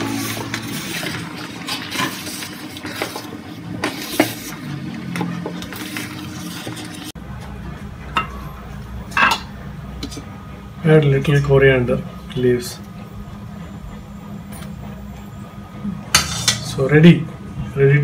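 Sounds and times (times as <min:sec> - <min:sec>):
wooden spatula scraping metal pot: 0:00.0 - 0:07.1.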